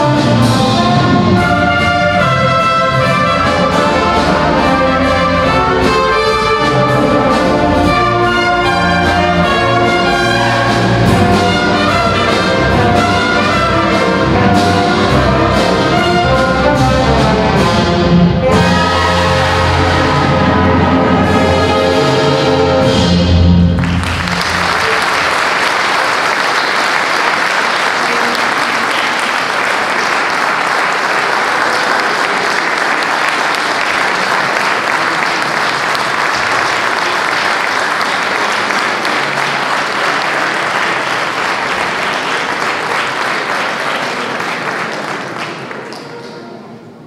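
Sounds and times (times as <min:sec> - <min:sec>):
audience applause: 0:23.7 - 0:46.8.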